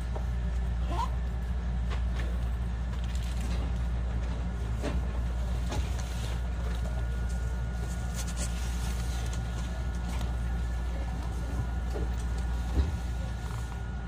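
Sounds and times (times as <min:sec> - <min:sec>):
train low rumble: 0:00.0 - 0:14.0.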